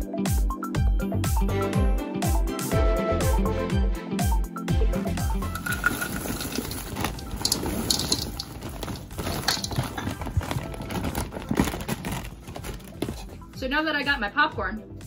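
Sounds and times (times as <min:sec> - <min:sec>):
popcorn tumbling into bowl: 0:05.4 - 0:13.4
paper bag rustling: 0:05.5 - 0:13.5.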